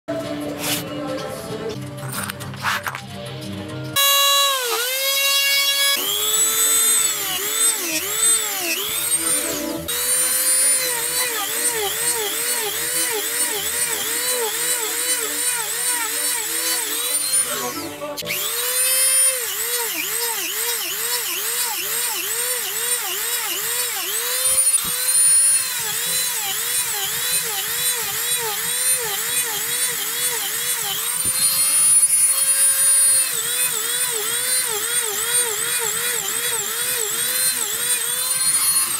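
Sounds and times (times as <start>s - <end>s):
rotary tool whine cutting wood: 4.0s - 38.9s.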